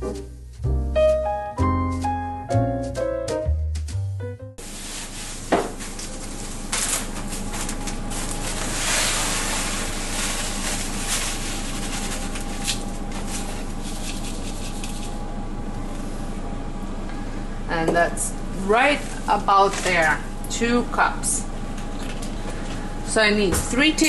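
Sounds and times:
plastic bag rustling: 4.6 - 15.2.

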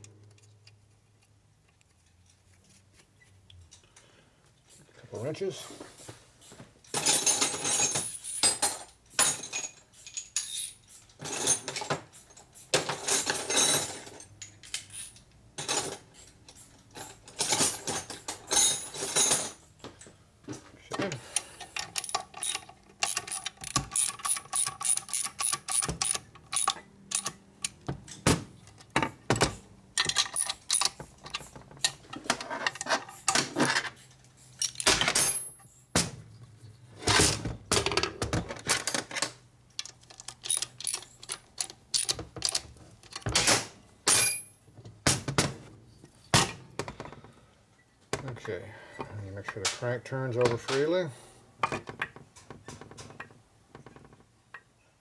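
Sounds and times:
wrenches clinking: 6.4 - 19.8, 21.0 - 35.9, 38.7 - 44.6
ratchet clicking: 21.7 - 27.8, 39.8 - 42.6.

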